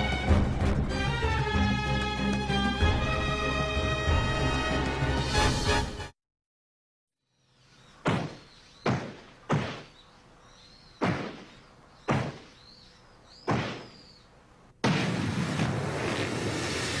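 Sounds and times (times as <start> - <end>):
heavy thuds of martial-arts blows: 8.0 - 10.0, 11.0 - 12.6, 13.4 - 14.0
faint bird chirps: 9.8 - 14.4.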